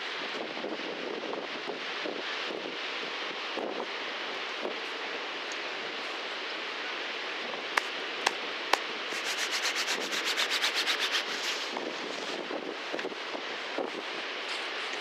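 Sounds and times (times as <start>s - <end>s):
wind: 0.0s - 15.0s
gloved hands rubbing together: 7.8s - 12.4s.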